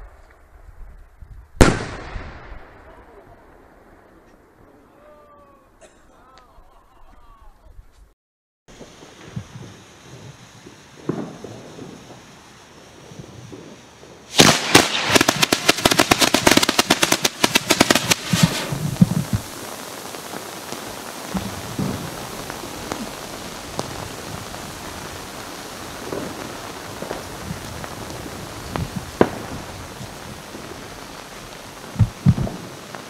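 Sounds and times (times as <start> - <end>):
fireworks popping: 0.0 - 3.6, 8.7 - 33.0
fireworks cracking: 0.0 - 5.0, 8.7 - 33.0
hiss of falling sparks: 8.7 - 33.0.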